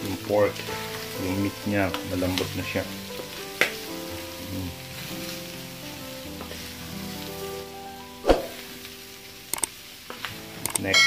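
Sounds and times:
pork and onions sizzling: 0.0s - 11.0s
spatula stirring and scraping: 4.6s - 7.6s.

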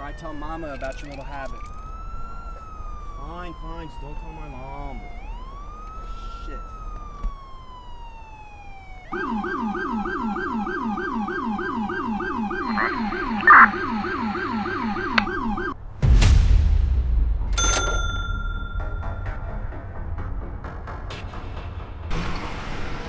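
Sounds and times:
police siren yelping: 0.0s - 15.8s
deep boom with rushing sweep: 15.8s - 17.6s
music: 18.5s - 23.0s.

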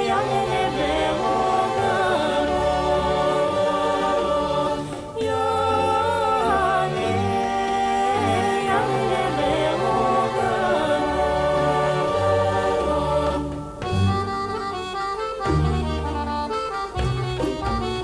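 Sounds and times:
voices singing together: 0.0s - 13.9s
instrumental accompaniment with bass: 0.0s - 18.0s.

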